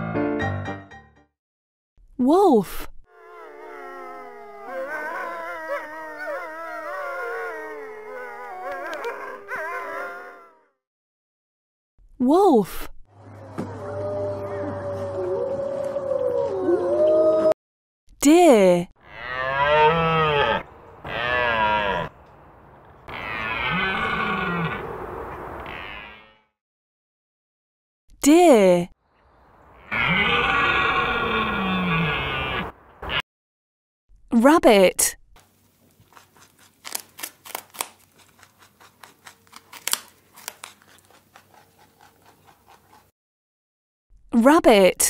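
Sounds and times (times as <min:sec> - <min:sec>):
deer calling: 0:23.0 - 0:25.0, 0:29.8 - 0:33.2
rabbit chewing greens: 0:35.4 - 0:43.1.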